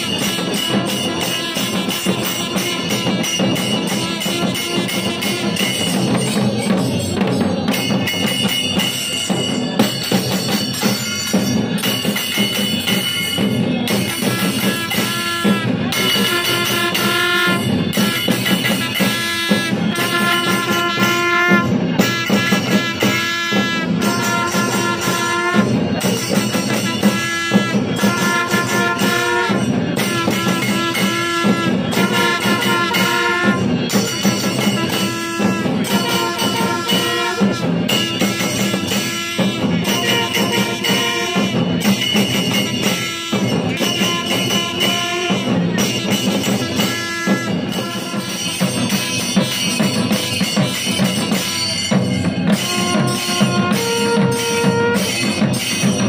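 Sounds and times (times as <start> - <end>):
drums beating: 0.0 - 56.0
hand cymbals: 0.0 - 56.0
brass horns blasting: 14.8 - 17.7, 18.7 - 25.8, 26.8 - 33.9, 34.7 - 37.8, 38.8 - 41.6, 46.5 - 48.5, 52.5 - 55.2.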